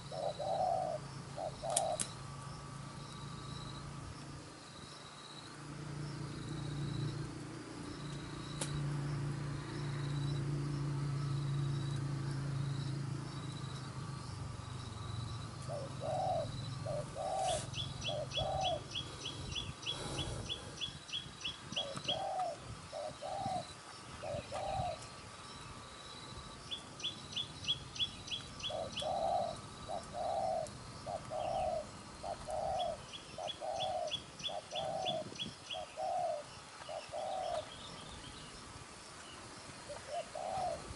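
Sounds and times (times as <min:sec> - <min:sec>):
doves cooing: 0:00.0 - 0:03.5, 0:15.0 - 0:25.2, 0:28.3 - 0:38.0, 0:39.8 - 0:40.9.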